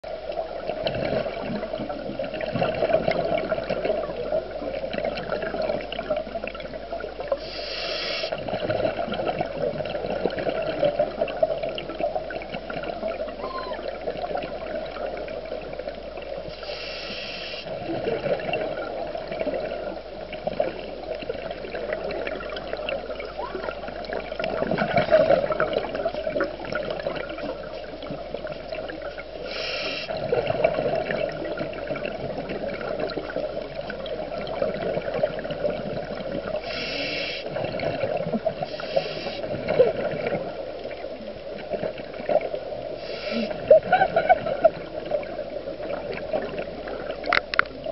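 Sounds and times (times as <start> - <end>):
exhaled bubbles gurgling: 0.1 - 47.9
muffled underwater noise: 7.3 - 8.4, 13.1 - 14.6, 16.4 - 18.5, 35.7 - 47.9.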